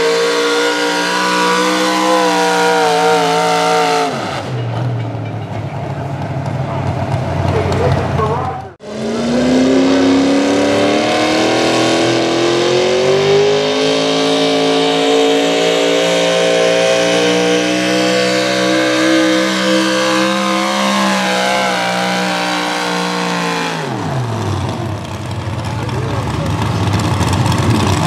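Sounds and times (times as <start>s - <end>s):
truck engine at full throttle: 0.0s - 28.0s.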